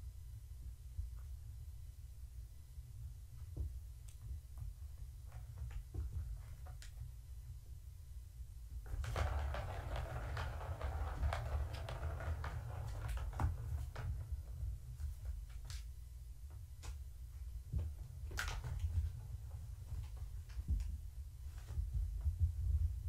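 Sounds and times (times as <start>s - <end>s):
plastic ball rolling and rattling: 8.8s - 15.9s, 17.7s - 21.0s.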